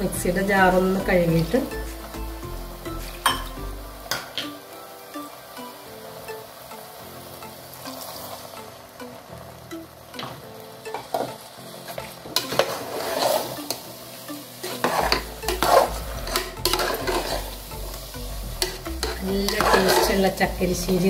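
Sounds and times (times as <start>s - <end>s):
metal spoon scraping a pot: 12.4s - 13.8s, 14.6s - 17.5s, 18.6s - 20.3s.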